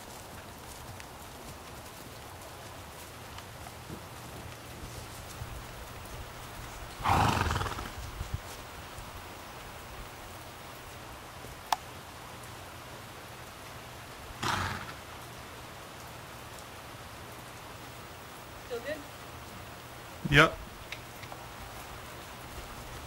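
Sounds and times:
horse snorting: 6.8s - 8.2s, 14.4s - 15.0s.

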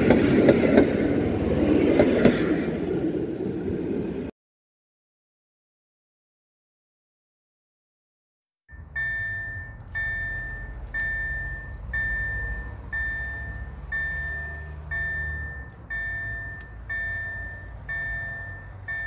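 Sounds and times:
level crossing bell striking: 8.7s - 19.0s.

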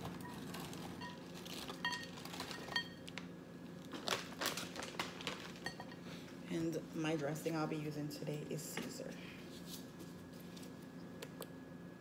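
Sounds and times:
plastic bag crinkling: 0.0s - 3.2s, 3.8s - 5.7s
croutons clinking in bowl: 0.3s - 3.1s.

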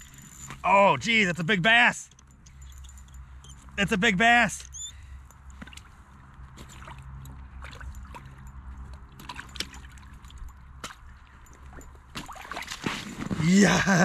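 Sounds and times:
water splashing and trickling: 5.0s - 14.0s.

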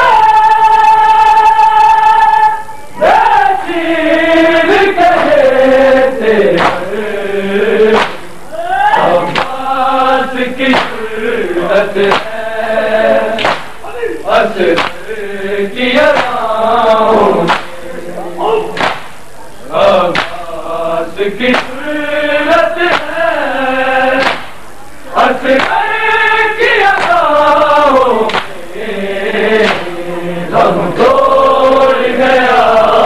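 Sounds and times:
men chanting a lament: 0.0s - 33.0s
hands slapping bare chests: 6.6s - 6.8s, 7.9s - 8.2s, 9.3s - 9.6s, 10.7s - 11.0s, 12.1s - 12.3s, 13.4s - 13.8s, 14.7s - 15.0s, 16.1s - 16.4s, 17.5s - 17.7s, 18.8s - 19.2s, 20.1s - 20.4s, 21.5s - 21.8s, 22.9s - 23.1s, 24.2s - 24.6s, 25.6s - 25.8s, 27.0s - 27.2s, 28.3s - 28.6s, 29.6s - 29.9s.

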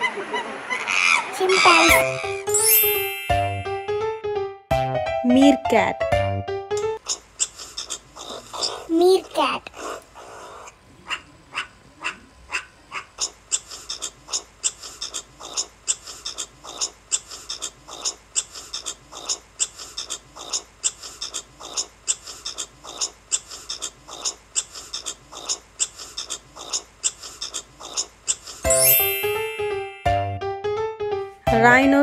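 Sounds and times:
meerkat short sharp calls: 0.7s - 2.3s.

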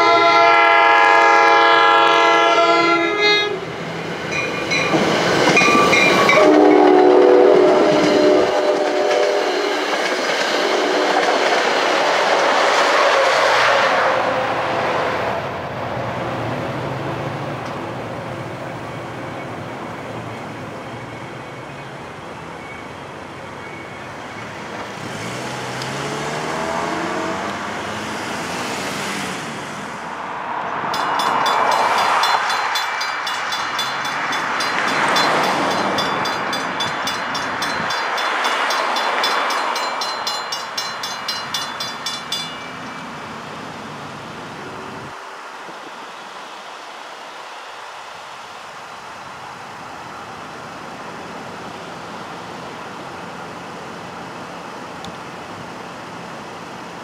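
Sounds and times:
railroad crossing bells ringing: 4.3s - 9.3s, 30.8s - 43.6s
cars passing: 24.3s - 45.6s.

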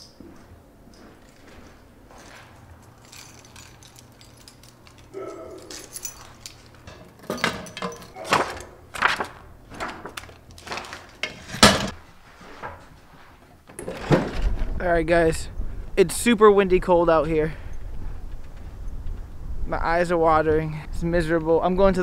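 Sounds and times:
keys jangling: 1.2s - 8.7s.

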